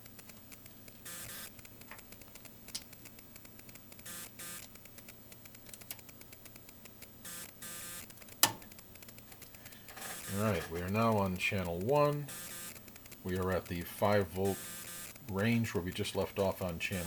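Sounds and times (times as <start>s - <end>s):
faint mains hum: 0.0s - 17.0s
short whirring bursts: 1.0s - 2.2s, 3.4s - 5.6s, 6.3s - 15.8s.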